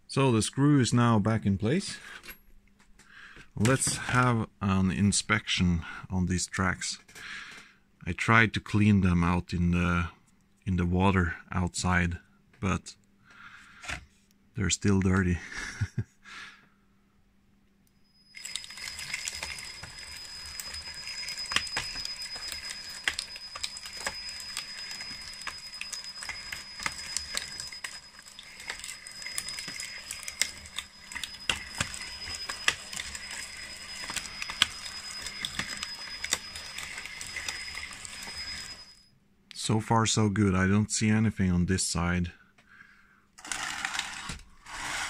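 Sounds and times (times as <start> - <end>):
electric motor whine: 18.3 - 39.0, 43.4 - 45.0.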